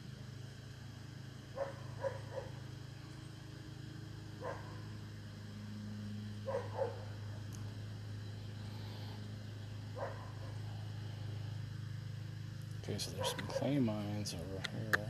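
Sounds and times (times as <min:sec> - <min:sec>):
steady low hum: 0:00.0 - 0:15.0
dog barking: 0:01.6 - 0:02.6, 0:04.4 - 0:04.8, 0:06.4 - 0:07.1, 0:10.0 - 0:10.6, 0:13.0 - 0:13.8.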